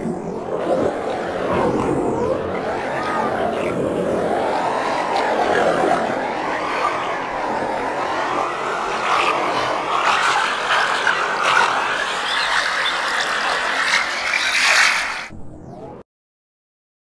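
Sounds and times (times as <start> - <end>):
processed sea waves: 0.0 - 15.8.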